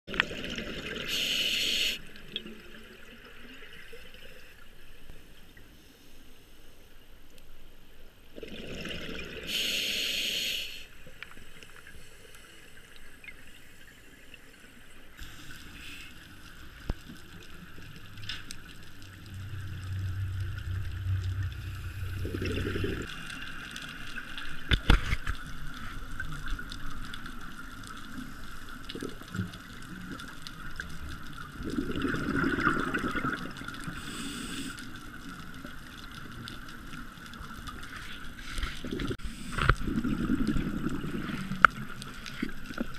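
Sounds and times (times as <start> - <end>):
underwater hiss: 0.9 - 2.2, 9.4 - 11.1, 14.8 - 17.4, 18.4 - 23.7, 31.7 - 35.4, 37.9 - 40.3
bubbling rumble: 16.6 - 24.8, 28.9 - 34.0, 38.8 - 42.5.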